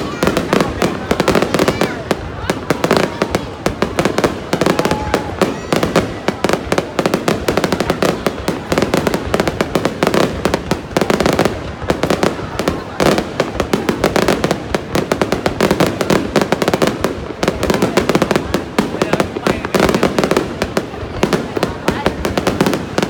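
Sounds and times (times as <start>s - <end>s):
fireworks bangs and crackles: 0.0s - 23.0s.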